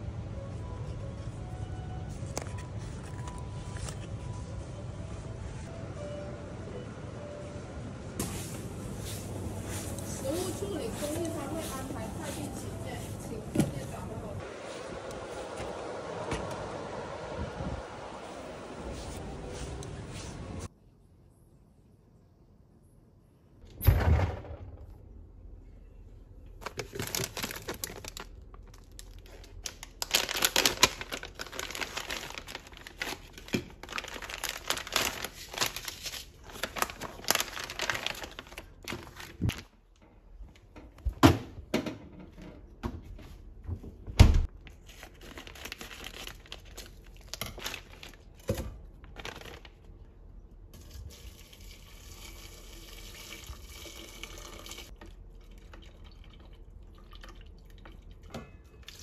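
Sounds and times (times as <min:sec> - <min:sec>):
plastic packaging crinkling: 0:26.6 - 0:39.8, 0:44.6 - 0:49.9.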